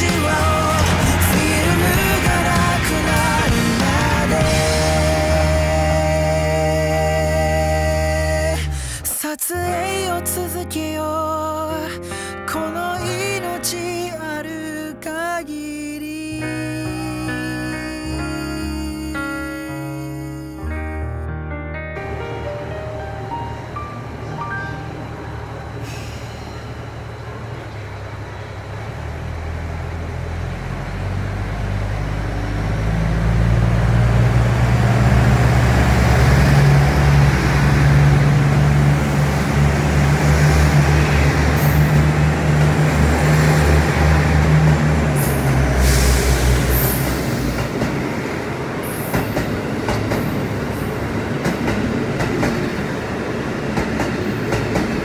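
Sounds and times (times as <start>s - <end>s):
diesel train engine drone: 0.0s - 11.0s, 22.0s - 55.0s
wheels clicking over rail joints: 53.6s - 55.0s.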